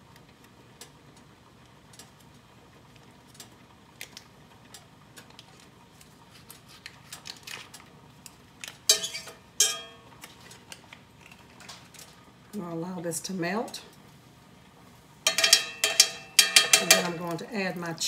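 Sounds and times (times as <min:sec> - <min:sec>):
knife clinking on skillet: 0:08.9 - 0:10.0, 0:15.3 - 0:17.3.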